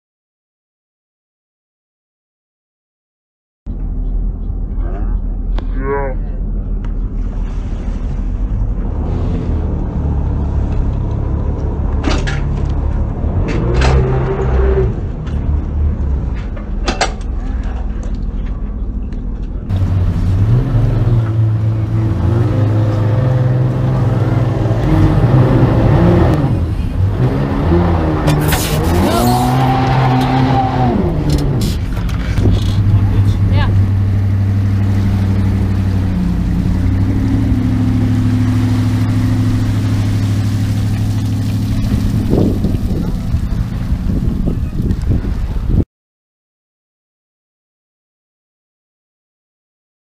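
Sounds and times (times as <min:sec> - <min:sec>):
motorboat engine revving: 0:07.0 - 0:12.0, 0:19.7 - 0:45.7.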